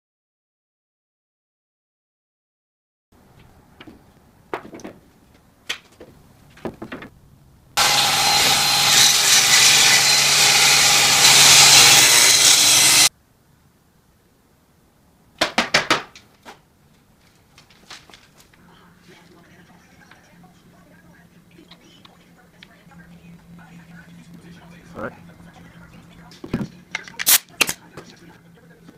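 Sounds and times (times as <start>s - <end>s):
wooden boards knocking: 3.8s - 5.1s, 5.7s - 7.2s, 15.4s - 16.3s
wood pieces clattering: 5.7s - 7.1s
table saw cutting wood: 7.8s - 13.1s.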